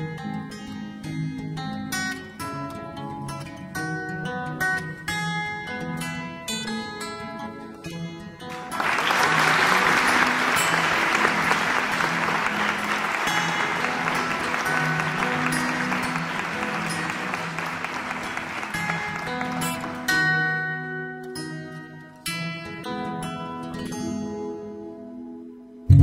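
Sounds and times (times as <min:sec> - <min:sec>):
acoustic guitar music: 0:00.0 - 0:26.0
applause: 0:08.4 - 0:20.7.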